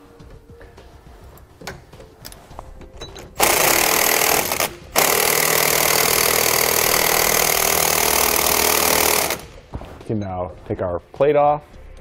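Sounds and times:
impact wrench hammering: 3.0s - 9.6s.

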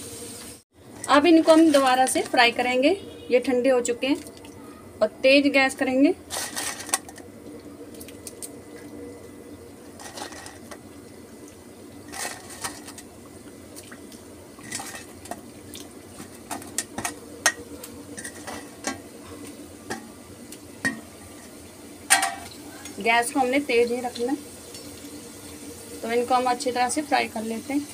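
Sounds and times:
fries sizzling in hot oil: 0.0s - 27.9s
oil popping and crackling: 4.0s - 4.6s, 6.2s - 26.1s.

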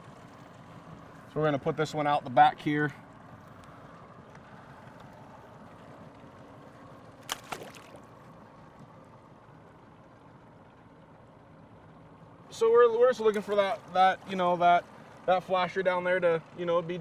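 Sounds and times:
boat motor running: 0.0s - 17.0s
object splashing into water: 7.2s - 8.2s.

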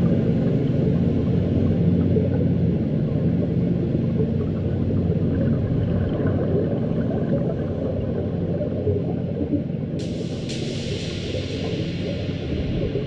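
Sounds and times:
muffled underwater rumble: 0.0s - 13.0s
air bubbling underwater: 10.0s - 13.0s.

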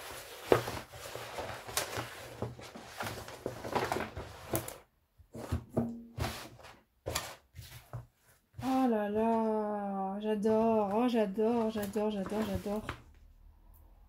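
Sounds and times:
plastic film crinkling: 11.4s - 13.0s.

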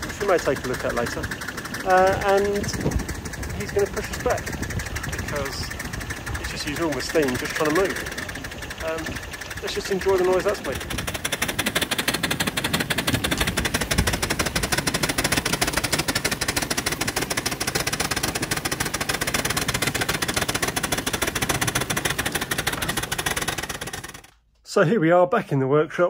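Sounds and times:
steam locomotive exhaust beats: 0.0s - 24.4s.

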